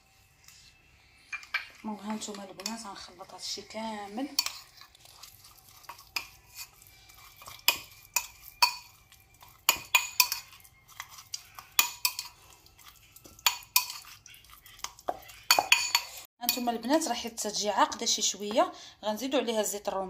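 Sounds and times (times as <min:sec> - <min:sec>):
metal spoon clinking in a bowl: 0:01.3 - 0:03.1, 0:04.1 - 0:17.2.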